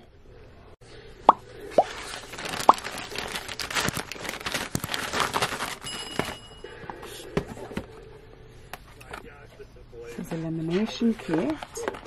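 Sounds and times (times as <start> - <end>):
plastic bag crinkling: 1.8 - 6.4.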